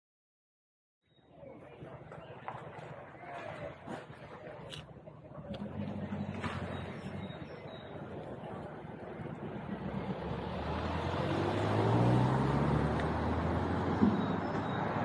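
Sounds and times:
outdoor rumble: 5.3 - 15.0
vehicle engine pulling away: 5.5 - 15.0.

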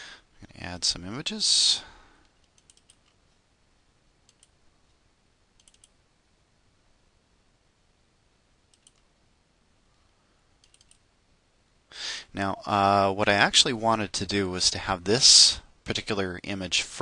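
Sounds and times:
computer mouse clicks: 2.2 - 3.2, 4.3 - 4.6, 5.6 - 6.0, 8.7 - 9.1, 10.6 - 11.0.

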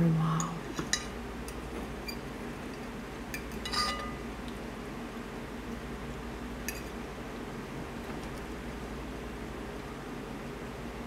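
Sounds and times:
steady low hum: 0.0 - 11.0
metal fork clinking on plate: 3.3 - 4.2.

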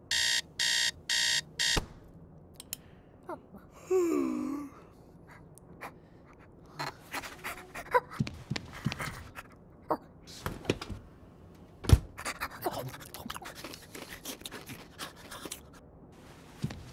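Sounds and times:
alarm clock beeping: 0.1 - 1.8.

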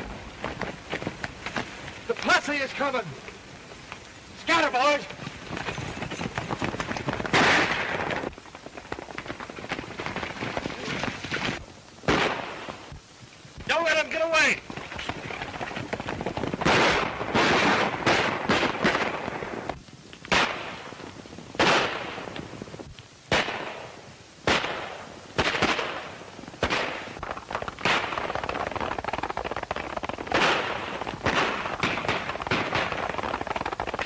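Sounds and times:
galloping horses' hooves: 0.0 - 11.7, 13.2 - 17.3, 26.5 - 34.0
gunshots with echoing tail: 6.6 - 8.2, 16.4 - 19.3, 21.6 - 22.2, 23.3 - 23.8, 27.8 - 34.0.

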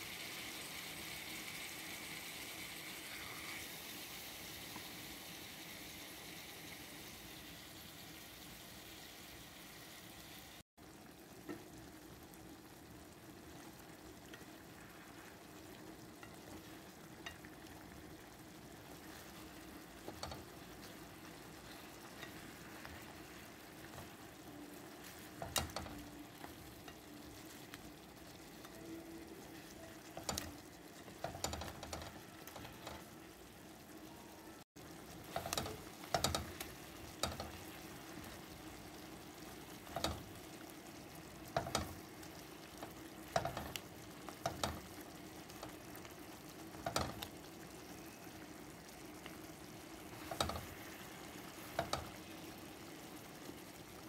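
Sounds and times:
chicken sizzling in hot oil: 0.0 - 54.0
spatula scraping and knocking pan: 20.0 - 20.9, 25.0 - 27.1, 30.1 - 33.0, 35.2 - 37.7, 43.3 - 44.9, 50.2 - 50.9, 51.6 - 52.2.

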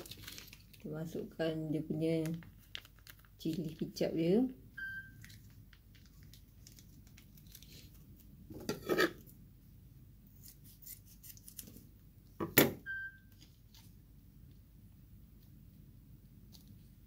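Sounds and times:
plastic rustling: 0.0 - 1.0, 2.2 - 4.0, 5.1 - 8.4.

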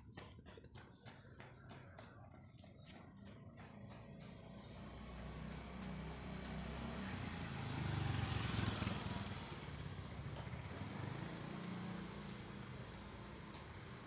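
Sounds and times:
small motorcycle riding past: 3.2 - 14.0.

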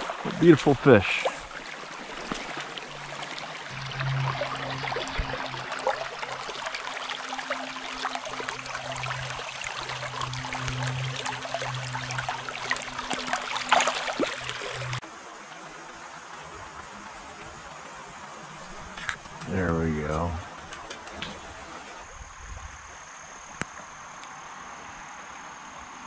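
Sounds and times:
creek water trickling: 0.0 - 25.9.

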